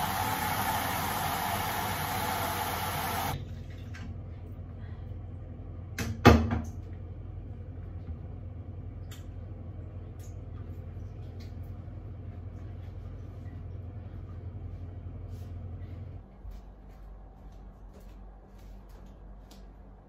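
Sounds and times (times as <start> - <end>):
steady low hum: 0.0 - 6.0, 6.7 - 20.0
bowl knocking on washing machine: 6.0 - 6.8.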